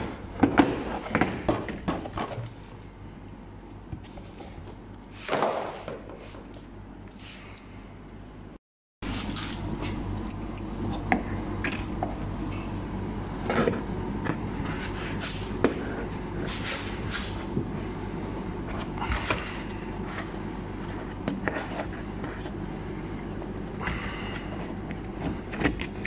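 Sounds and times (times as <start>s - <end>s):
low hum: 6.6s - 26.0s.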